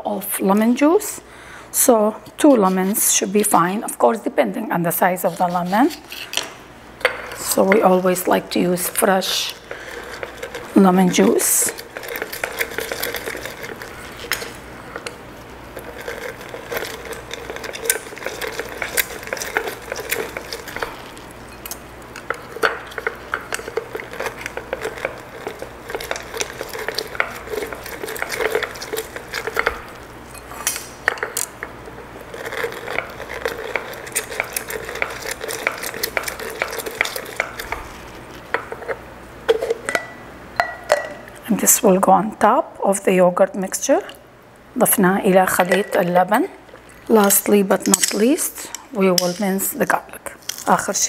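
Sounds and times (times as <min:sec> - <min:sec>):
lemon squishing on reamer: 0:04.9 - 0:40.0.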